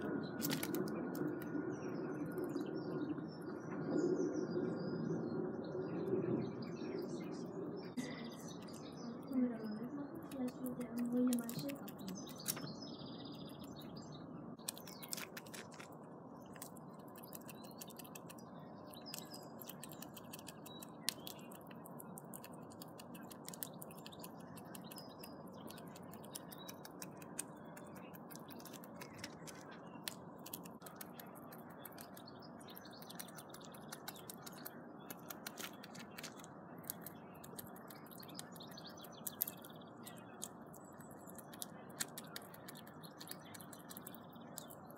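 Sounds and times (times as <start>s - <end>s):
squirrel gnawing a nut shell: 0.0s - 1.5s, 10.2s - 12.7s, 14.6s - 44.9s
birds chirping faintly: 0.0s - 44.9s.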